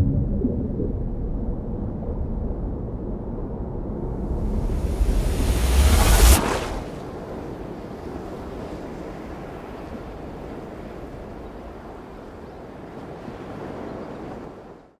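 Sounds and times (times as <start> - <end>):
sea: 0.0 - 15.0
wind: 0.0 - 15.0.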